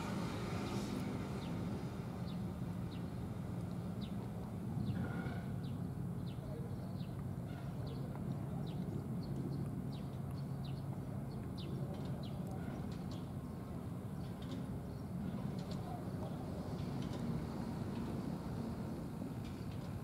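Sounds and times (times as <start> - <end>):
low engine hum: 0.0 - 7.4.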